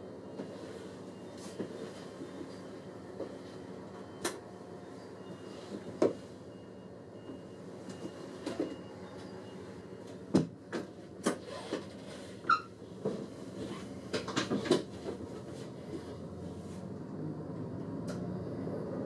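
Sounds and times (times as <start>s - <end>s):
brief squeak: 12.4s - 12.8s.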